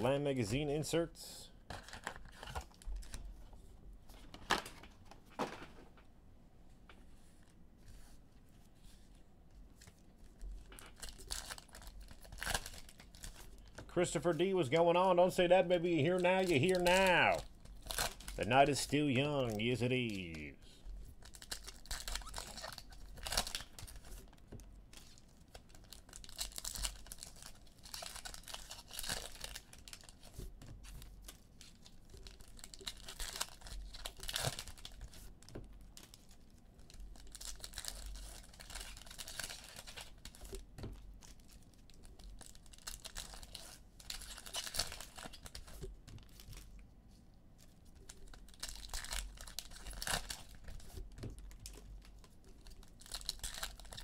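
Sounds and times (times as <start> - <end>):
foil packs ripping and crinkling: 10.7 - 13.8, 16.0 - 18.4, 21.2 - 24.3, 24.9 - 30.3, 30.9 - 40.6, 41.2 - 46.6, 48.1 - 51.8, 52.6 - 54.0.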